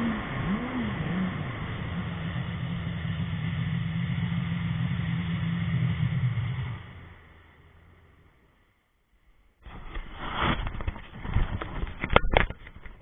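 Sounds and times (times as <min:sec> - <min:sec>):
watercraft engine under throttle: 0:00.0 - 0:08.2
constant rushing noise: 0:09.6 - 0:13.0.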